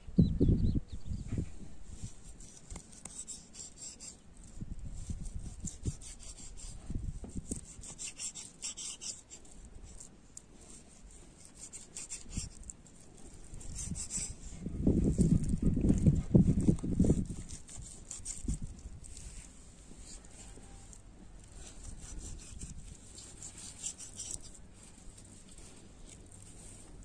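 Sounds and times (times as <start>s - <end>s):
knife slicing fat: 21.5s - 24.6s.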